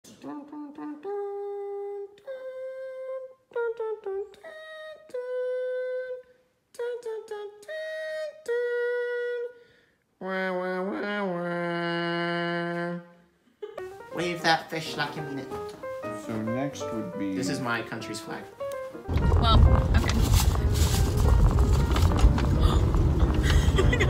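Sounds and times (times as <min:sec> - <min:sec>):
person humming a slow tune: 0:00.1 - 0:09.6, 0:10.2 - 0:13.8.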